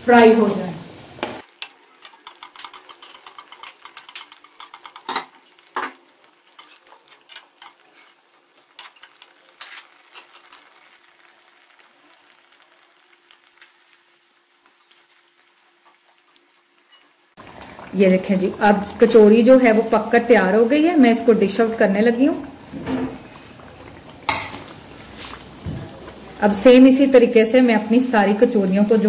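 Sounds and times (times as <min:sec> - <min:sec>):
oil sizzling: 0:00.0 - 0:29.0
metal spoon scraping pan: 0:02.2 - 0:05.4, 0:06.5 - 0:10.3.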